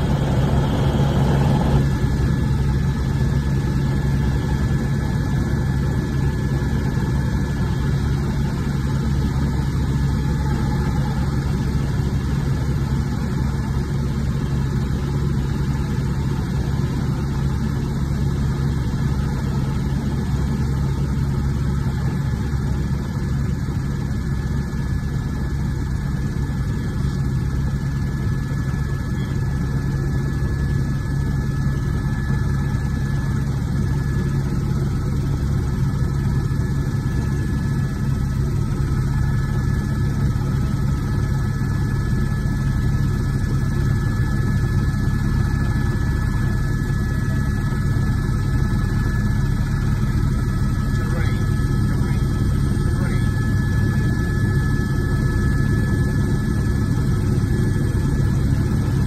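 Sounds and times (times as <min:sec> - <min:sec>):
thin whining tones: 0:00.0 - 0:02.3
helicopter rotor and engine drone: 0:00.0 - 0:59.0.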